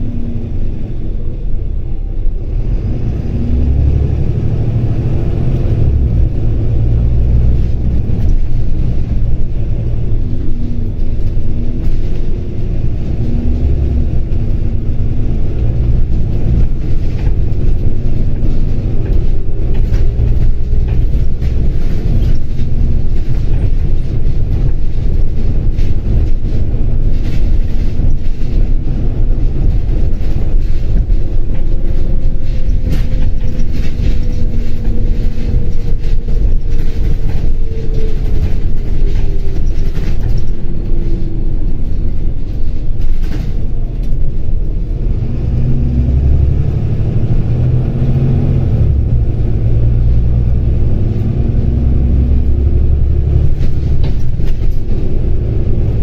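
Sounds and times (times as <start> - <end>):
bus engine and road rumble: 0.0 - 56.0
interior rattles: 6.2 - 44.8.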